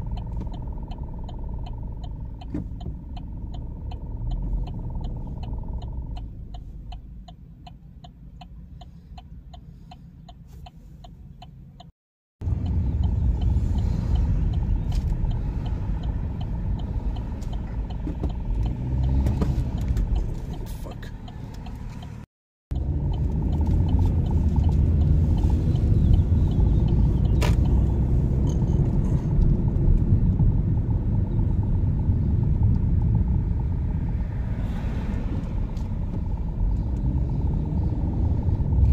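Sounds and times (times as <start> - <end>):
steady quick ticking: 0.0 - 28.4
engine and tyre rumble: 0.0 - 38.9.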